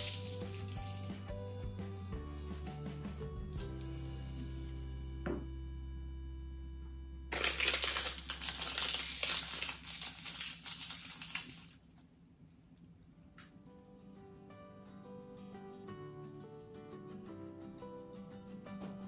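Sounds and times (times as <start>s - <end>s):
dry seaweed crackling: 7.3s - 11.8s.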